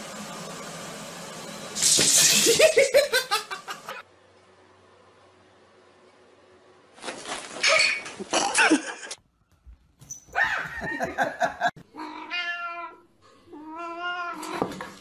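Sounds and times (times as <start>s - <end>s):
cat meowing: 12.0s - 13.0s.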